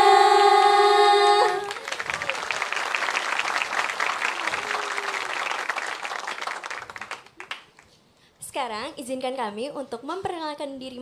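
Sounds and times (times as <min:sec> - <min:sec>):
group singing held note: 0:00.0 - 0:01.8
audience applauding: 0:01.6 - 0:07.9.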